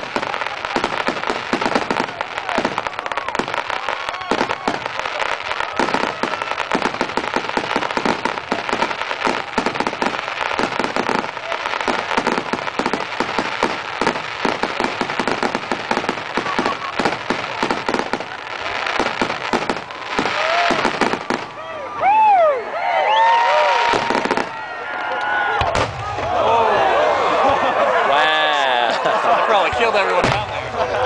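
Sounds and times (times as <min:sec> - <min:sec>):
fireworks bangs and crackles: 0:00.0 - 0:21.7, 0:23.3 - 0:26.6, 0:29.6 - 0:31.0.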